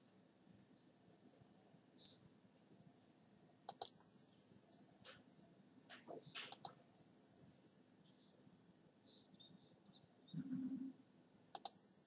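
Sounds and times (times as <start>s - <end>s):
computer mouse clicks: 3.6s - 4.0s, 6.3s - 6.8s, 11.5s - 11.8s.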